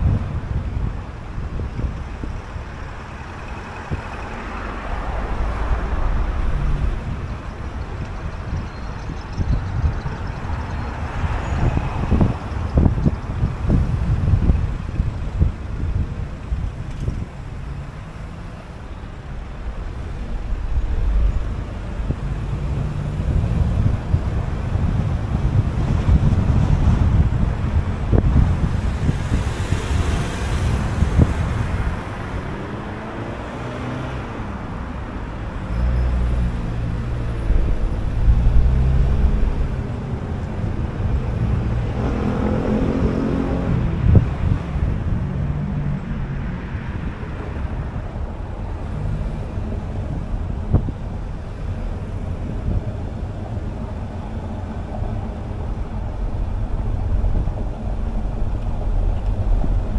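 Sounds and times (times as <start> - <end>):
car road and engine rumble: 0.0 - 59.9
surrounding traffic: 0.0 - 59.9
loud vehicle passing by: 2.3 - 8.7, 17.4 - 25.6, 26.2 - 59.9.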